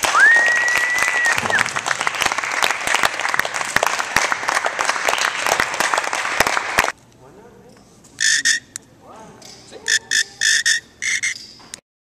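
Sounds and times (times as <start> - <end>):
audience applauding: 0.0 - 6.9
rising whistle: 0.1 - 1.7.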